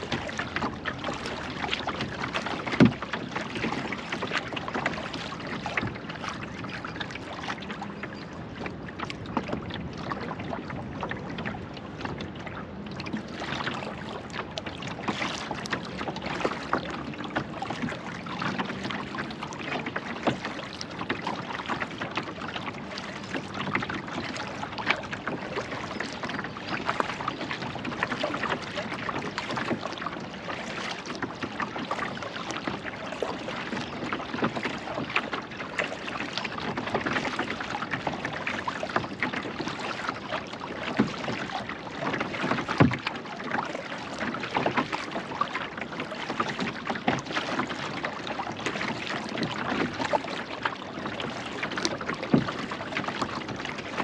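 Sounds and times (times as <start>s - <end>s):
paddle dipping and splashing: 0.0s - 54.0s
water lapping around hull: 0.0s - 54.0s.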